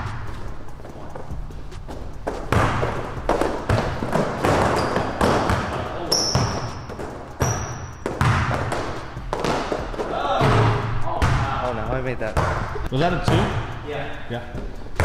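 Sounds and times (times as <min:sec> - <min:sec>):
sneakers squeaking: 0:00.0 - 0:11.6
basketball bouncing on wood floor: 0:02.2 - 0:11.6, 0:12.3 - 0:13.6.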